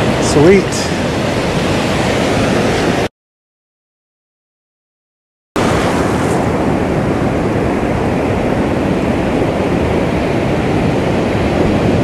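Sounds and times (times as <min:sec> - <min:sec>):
ocean surf breaking: 0:00.0 - 0:03.1, 0:05.6 - 0:12.0
wind buffeting microphone: 0:00.0 - 0:03.1, 0:05.6 - 0:12.0.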